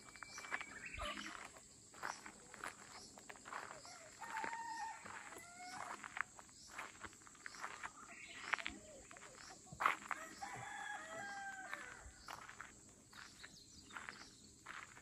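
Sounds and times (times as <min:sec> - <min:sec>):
rooster crowing: 0:03.8 - 0:06.1, 0:10.1 - 0:12.1.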